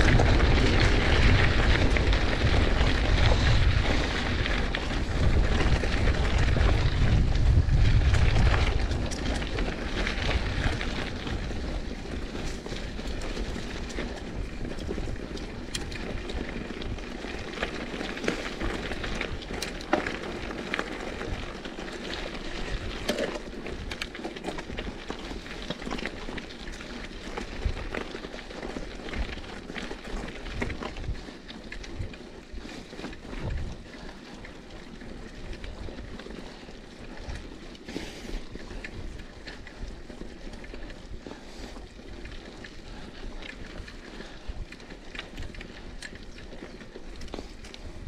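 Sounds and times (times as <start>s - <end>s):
low rumble: 0.0s - 8.9s
bike clicks and rattles: 0.0s - 48.0s
bike tyres rolling on dirt: 0.0s - 48.0s.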